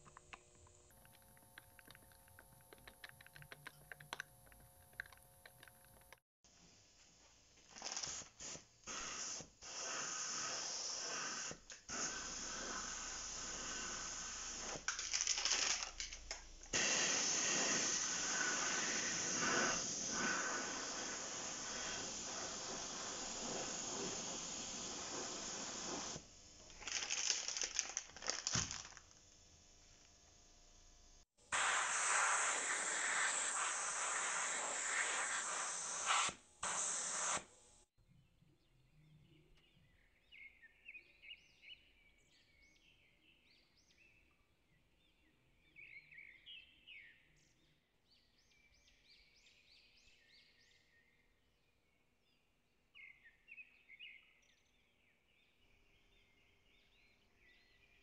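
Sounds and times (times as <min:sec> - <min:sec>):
paint spray gun hissing: 0:07.8 - 0:16.0, 0:16.7 - 0:29.0, 0:31.4 - 0:37.5.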